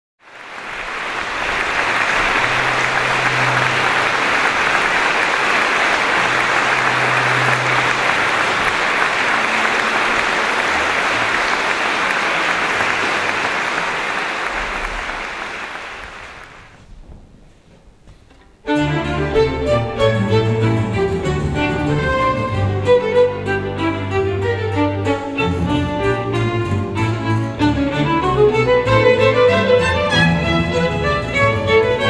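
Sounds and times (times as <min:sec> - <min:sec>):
audience applauding: 0:00.2 - 0:16.8.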